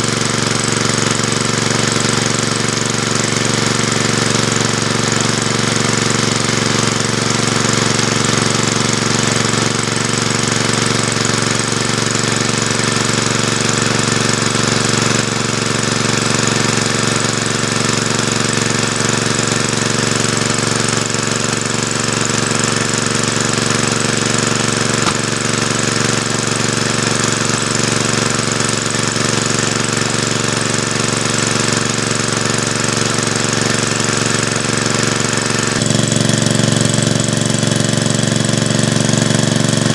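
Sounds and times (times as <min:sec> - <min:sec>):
engine running with knocking beat: 0:00.0 - 0:39.9.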